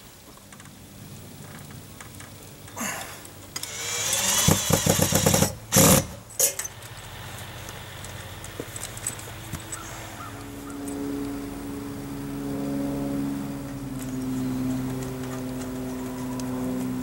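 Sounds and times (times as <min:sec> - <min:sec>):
rustling and scraping of tubing: 0:01.4 - 0:11.0.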